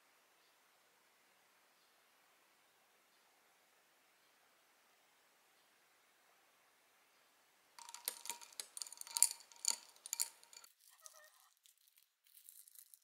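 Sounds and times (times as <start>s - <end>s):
metal stirrer clinking glass: 7.8s - 11.1s.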